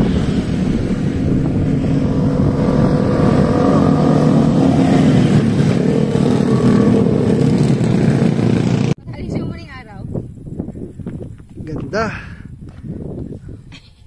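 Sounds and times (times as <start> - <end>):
motorcycles riding past: 0.0 - 9.0.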